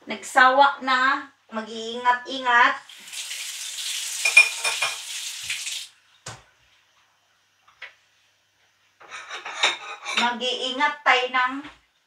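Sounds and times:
food sizzling in a pan: 2.8s - 5.9s.

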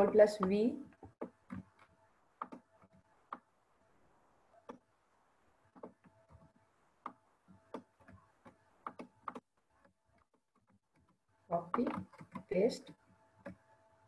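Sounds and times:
mouse and keyboard clicks: 0.1s - 3.5s, 7.0s - 9.4s, 10.2s - 13.6s.

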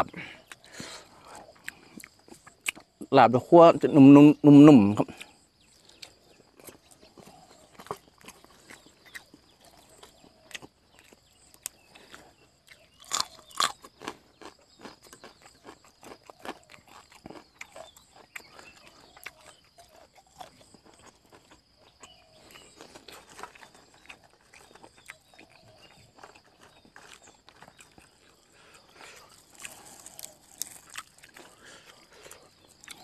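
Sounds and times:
person chewing crunchy food: 0.0s - 3.1s, 5.0s - 33.0s
loud crunchy bites: 4.8s - 33.0s.

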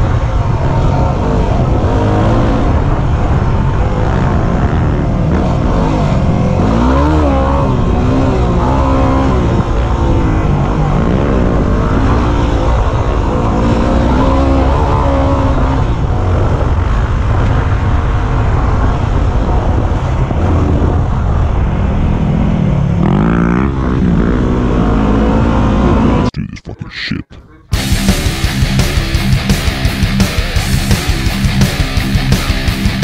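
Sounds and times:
motorcycle engine revving: 0.0s - 26.3s, 27.7s - 33.0s
wind noise on microphone: 0.0s - 26.3s.

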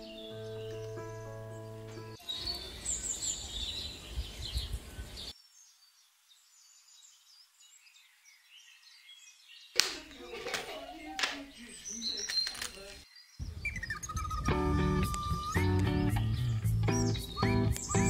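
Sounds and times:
music: 0.0s - 2.2s, 13.8s - 18.0s
birds chirping: 0.0s - 18.0s
outdoor background noise: 0.0s - 18.0s.

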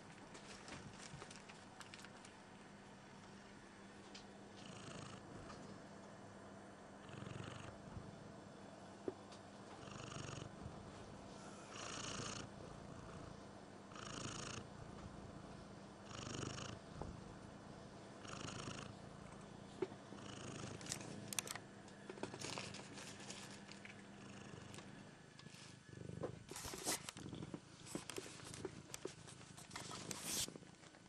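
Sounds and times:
cat purring: 4.6s - 5.5s, 7.0s - 8.3s, 9.8s - 11.1s, 11.7s - 17.4s, 18.2s - 21.4s, 22.3s - 31.0s
rustling: 26.5s - 30.9s.

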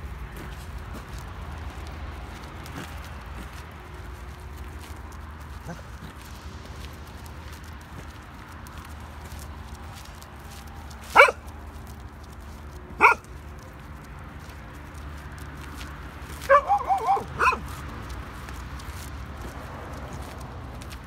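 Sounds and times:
dogs barking and yipping: 5.5s - 6.3s, 11.0s - 11.5s, 12.9s - 14.5s, 15.7s - 18.2s.

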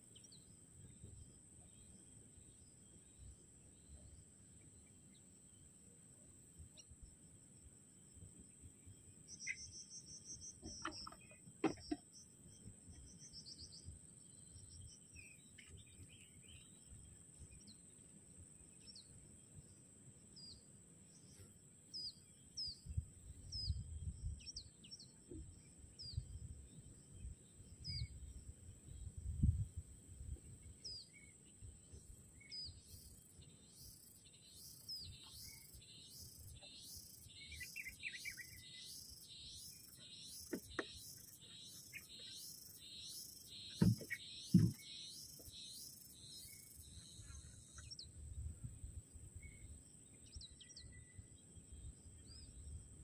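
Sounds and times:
bird chirping: 8.0s - 29.6s, 30.5s - 48.4s, 49.4s - 52.8s
fast pulsing insect chirr: 32.8s - 47.7s.

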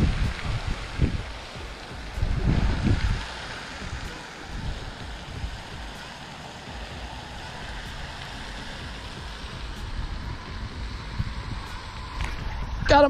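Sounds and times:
outdoor hiss: 0.0s - 13.0s
wind buffeting microphone: 0.0s - 13.0s.

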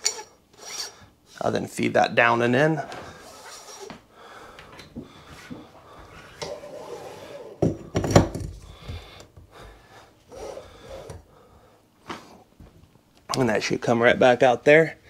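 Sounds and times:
hose rubbing and bumping in cabinet: 5.1s - 9.0s, 10.3s - 11.3s.

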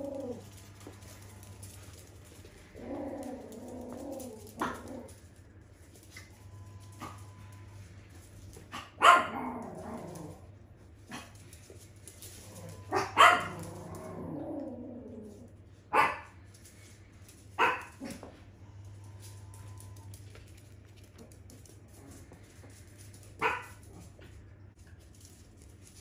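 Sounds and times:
dogs play growling: 0.0s - 6.1s, 9.3s - 15.8s, 18.0s - 24.4s
small dogs barking: 8.7s - 10.3s, 12.7s - 14.8s, 15.9s - 16.4s, 17.6s - 18.4s, 23.4s - 24.1s.

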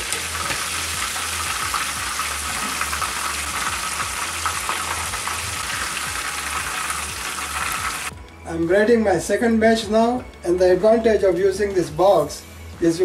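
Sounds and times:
chicken sizzling in hot oil: 0.0s - 8.1s.

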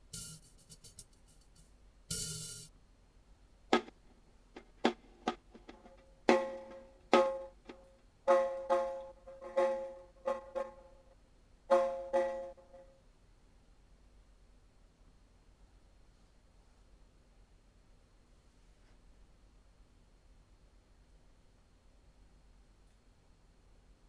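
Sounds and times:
granulated drum hits: 0.0s - 1.1s, 2.1s - 2.7s, 3.7s - 4.0s, 4.6s - 11.0s, 11.7s - 12.8s.

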